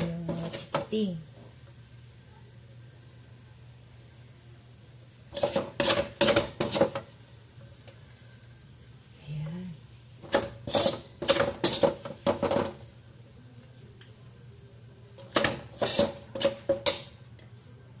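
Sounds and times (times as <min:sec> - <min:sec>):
metal spatula scraping a wok: 0:05.3 - 0:07.1, 0:10.2 - 0:12.7, 0:15.4 - 0:17.0.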